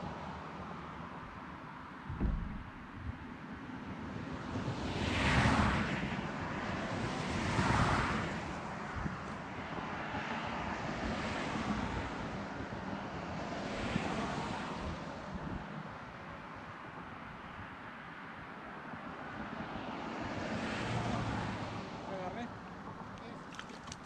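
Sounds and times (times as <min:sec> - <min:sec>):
steady outdoor rush: 0:00.0 - 0:24.0
wind buffeting microphone: 0:02.0 - 0:10.0.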